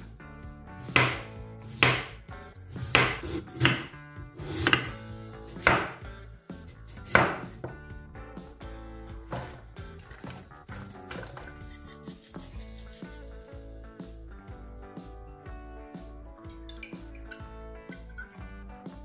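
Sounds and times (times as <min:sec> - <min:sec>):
knife chopping on cutting board: 0:00.8 - 0:06.0, 0:06.9 - 0:07.8, 0:09.3 - 0:09.6.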